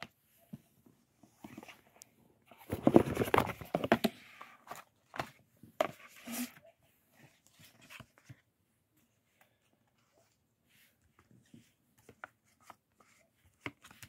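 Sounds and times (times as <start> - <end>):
cardboard rustles and knocks: 2.6 - 4.2.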